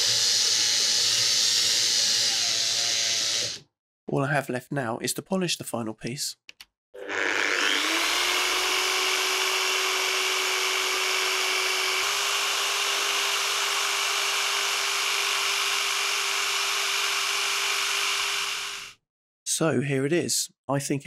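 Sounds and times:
electric polisher whine: 0:00.0 - 0:01.7, 0:07.0 - 0:18.9.

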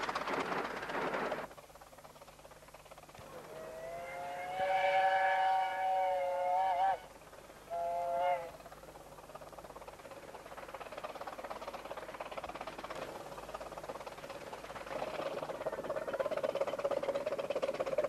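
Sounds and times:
steam engine exhaust beats: 0:00.0 - 0:18.0
steam locomotive whistle: 0:03.5 - 0:07.1, 0:07.7 - 0:08.6.

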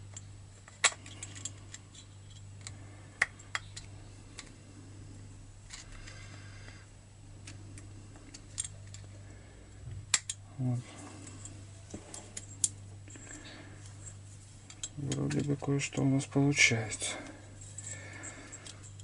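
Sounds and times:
small sharp metal clicks: 0:10.1 - 0:10.4.

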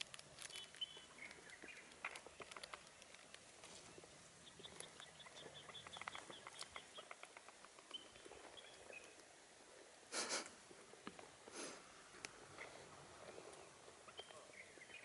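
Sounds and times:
faint clicks: 0:00.0 - 0:03.7, 0:05.7 - 0:08.0.

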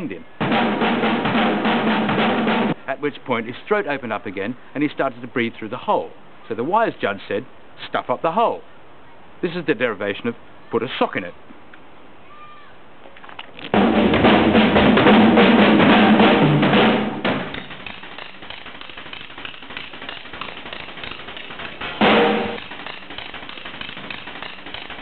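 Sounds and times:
rapid drum strokes: 0:00.4 - 0:02.8, 0:13.7 - 0:25.0.

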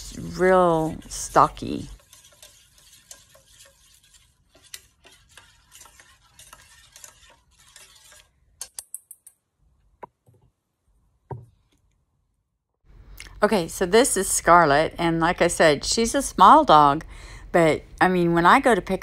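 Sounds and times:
spoon stirring in metal bowl: 0:00.0 - 0:09.4.

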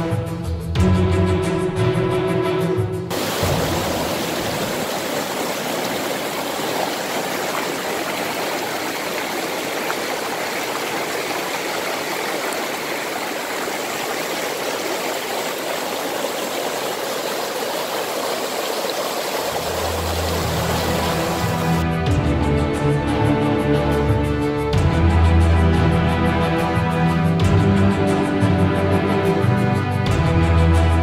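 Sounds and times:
stream rushing over rocks: 0:03.1 - 0:21.8.

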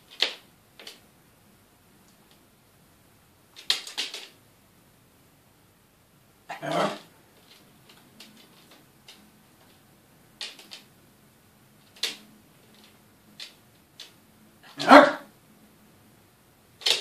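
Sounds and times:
dog barking: 0:06.5 - 0:07.1, 0:14.6 - 0:15.3.

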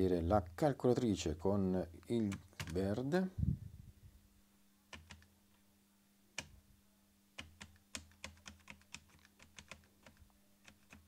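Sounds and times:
keyboard key taps: 0:02.3 - 0:02.8.

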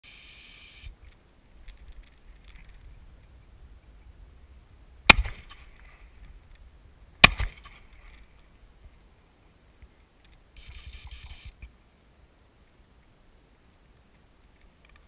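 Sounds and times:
high steady tone: 0:00.0 - 0:00.9, 0:10.6 - 0:11.5.

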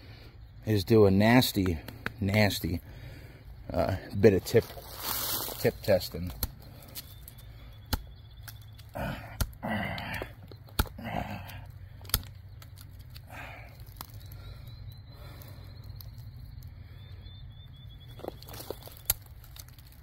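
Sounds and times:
faint bird chirping: 0:00.0 - 0:19.5
knife stabbing into tree trunk: 0:05.4 - 0:14.3, 0:18.2 - 0:20.0.

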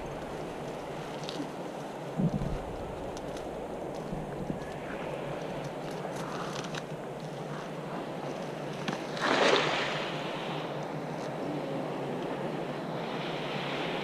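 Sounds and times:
wind noise on microphone: 0:00.0 - 0:08.3.

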